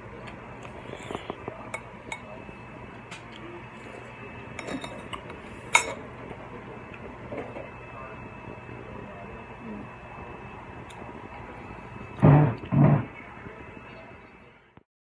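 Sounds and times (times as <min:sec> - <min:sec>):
dishes and cutlery clinking: 0:04.6 - 0:06.0.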